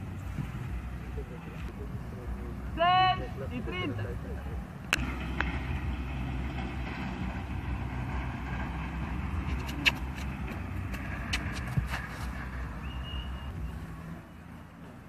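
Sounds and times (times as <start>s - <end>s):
wind buffeting microphone: 5.0s - 14.2s.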